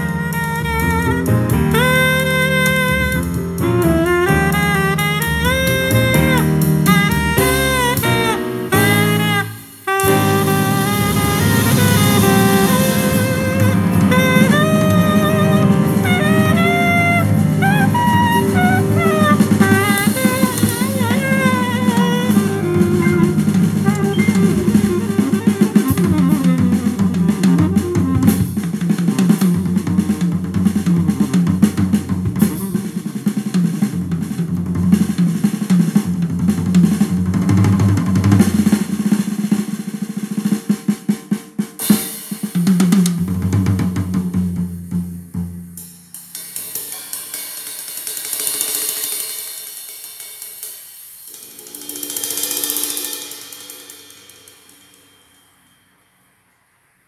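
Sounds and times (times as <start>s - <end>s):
drum kit playing: 0.0s - 55.4s
melodic lead line: 1.5s - 28.4s.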